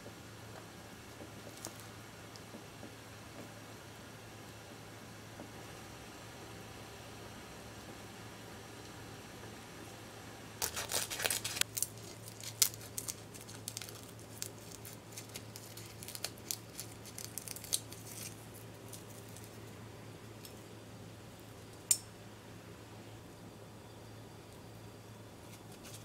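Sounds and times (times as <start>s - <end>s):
scissors snipping seaweed: 10.6s - 18.4s.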